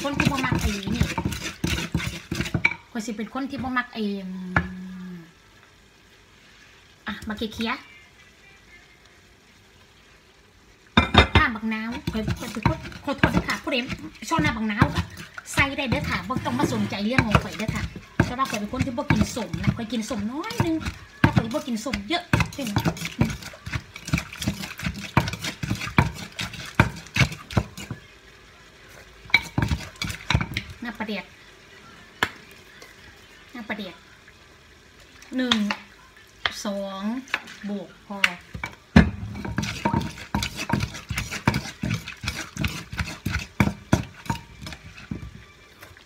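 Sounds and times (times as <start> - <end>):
pestle pounding in mortar: 0.0 - 2.8, 11.0 - 28.0, 29.3 - 30.7, 38.5 - 45.4.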